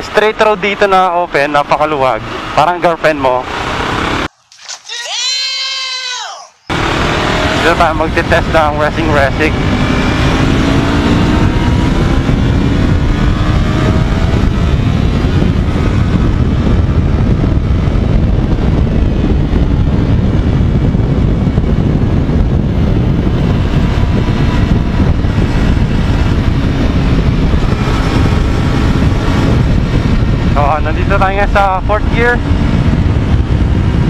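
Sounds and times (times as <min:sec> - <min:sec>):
motorcycle engine accelerating: 0:00.0 - 0:04.3, 0:06.7 - 0:34.0
wind rush on microphone: 0:06.7 - 0:34.0.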